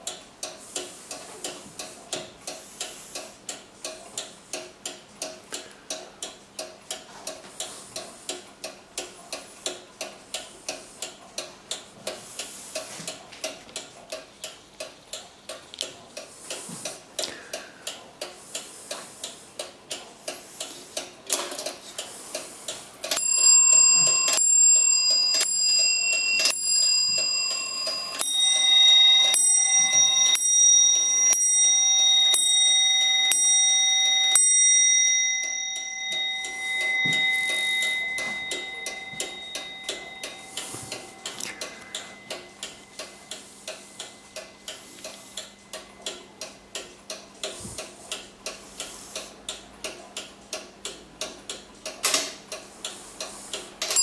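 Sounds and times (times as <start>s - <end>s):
clock ticking: 0.0s - 54.0s
clock striking bells: 23.1s - 46.0s.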